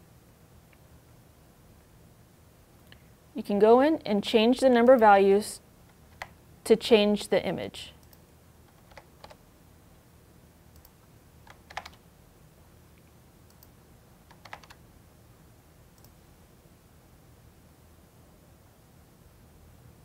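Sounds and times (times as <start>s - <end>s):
faint low hum: 0.0s - 20.0s
computer keyboard keystrokes: 6.1s - 6.4s, 8.0s - 9.4s, 10.8s - 12.0s, 14.3s - 14.8s.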